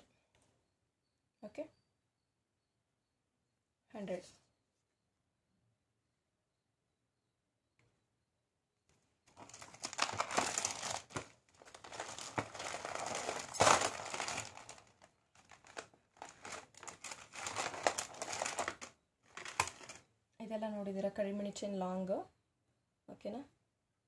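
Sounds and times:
packaging crinkling: 9.3 - 20.1.

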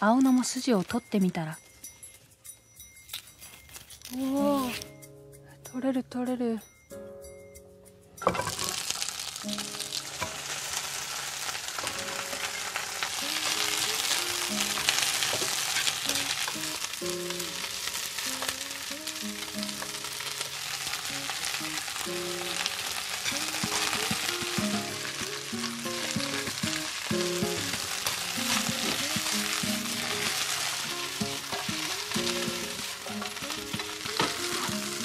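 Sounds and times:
greens sizzling in a frying pan: 0.0 - 1.0, 8.2 - 35.0
soft melody: 0.0 - 35.0.

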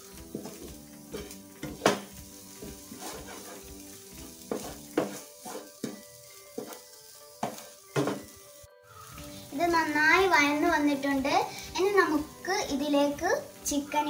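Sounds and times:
light sizzle: 0.0 - 14.0
spatula scraping a pan: 0.2 - 8.4
spatula knocking against pan: 0.3 - 3.5, 4.4 - 6.8, 7.4 - 8.3.

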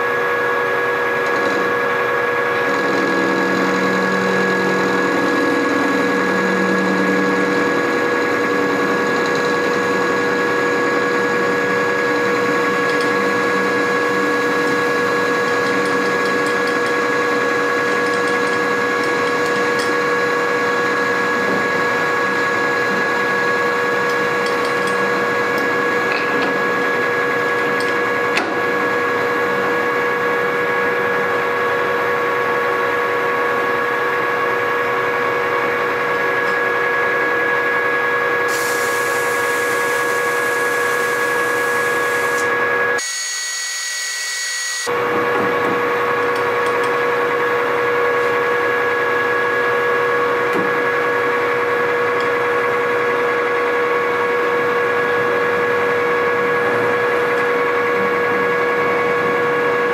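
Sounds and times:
metal lathe running: 0.0 - 45.2.

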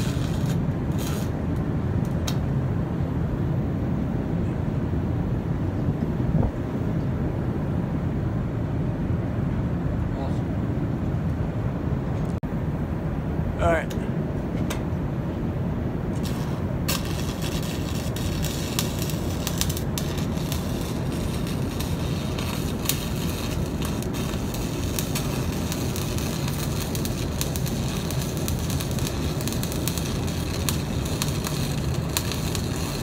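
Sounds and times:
electric arc welding crackling: 0.0 - 1.4, 16.2 - 33.0.

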